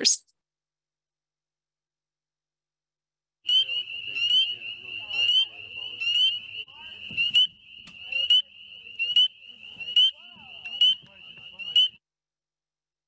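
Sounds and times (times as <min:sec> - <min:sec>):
chorus of frogs: 0:03.4 - 0:12.0.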